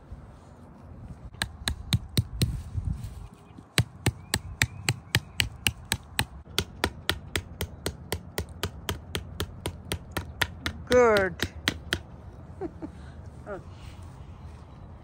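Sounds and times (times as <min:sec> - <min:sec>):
hammer striking nail: 0:03.8 - 0:12.0.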